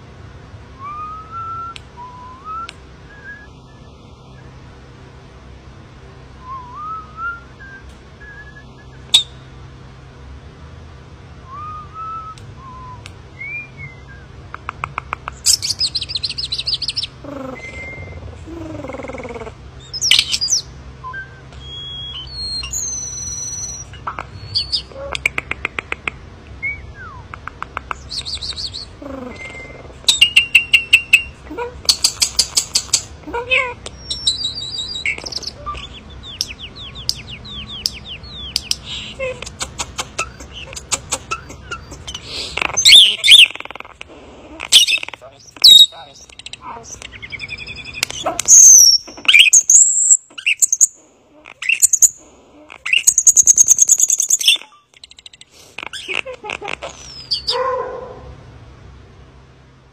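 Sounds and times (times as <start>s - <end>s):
starling singing: 11.5s - 57.6s.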